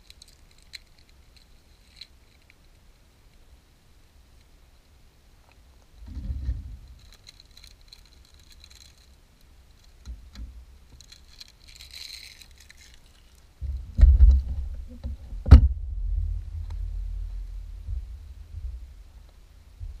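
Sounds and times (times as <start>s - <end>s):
loud low rumble with knocks: 13.6s - 20.0s.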